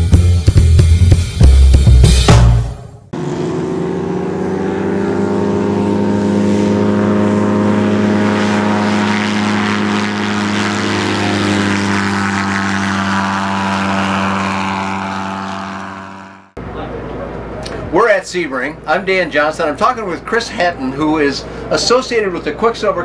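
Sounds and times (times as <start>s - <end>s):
aircraft engine and propeller drone: 3.1s - 17.9s, 20.2s - 22.8s.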